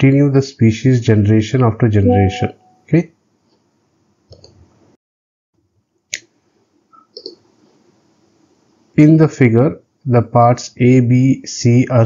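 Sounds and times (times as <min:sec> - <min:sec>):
computer mouse click: 0:04.3 - 0:04.6, 0:07.0 - 0:07.4.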